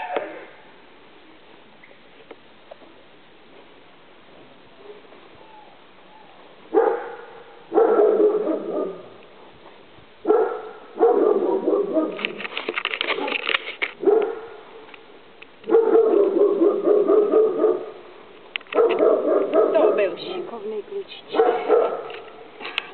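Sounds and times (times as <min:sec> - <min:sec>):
dog barking: 0:06.7 - 0:09.1, 0:10.3 - 0:12.3, 0:14.0 - 0:14.6, 0:15.7 - 0:18.0, 0:18.7 - 0:20.3, 0:21.3 - 0:22.2.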